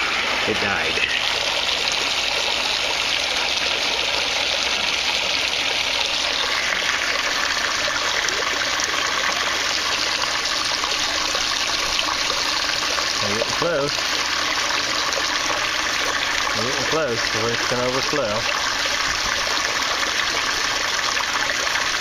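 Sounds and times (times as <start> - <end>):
water splashing into a tank: 0.0 - 22.0.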